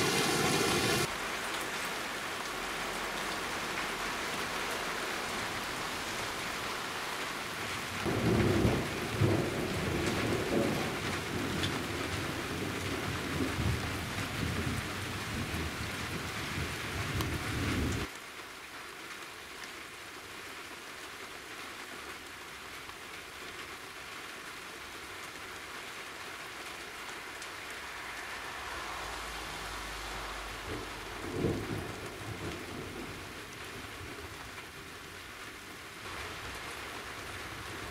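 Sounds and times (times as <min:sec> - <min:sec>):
steady rain: 0:00.0 - 0:37.9
thunder rumbling: 0:08.0 - 0:18.1, 0:27.1 - 0:35.0.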